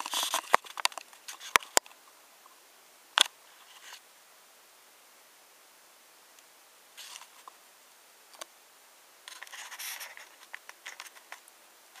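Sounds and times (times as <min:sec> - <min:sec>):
camera handling rustling: 0:00.0 - 0:01.8.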